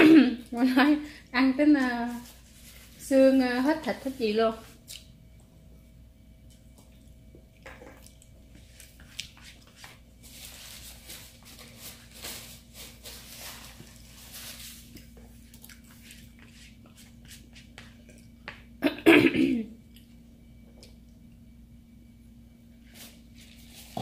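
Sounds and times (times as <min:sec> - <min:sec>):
soft rustling: 0:01.8 - 0:04.8.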